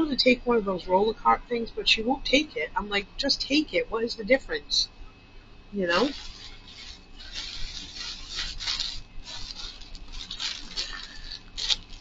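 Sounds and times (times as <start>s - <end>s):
plastic bag crinkling: 5.9s - 12.0s.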